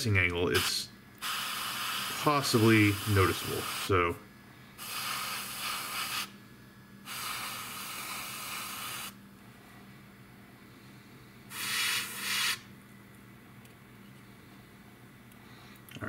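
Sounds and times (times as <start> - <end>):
airbrush spraying hiss: 0.6 - 4.0, 4.8 - 6.3, 7.0 - 9.2, 11.5 - 12.7.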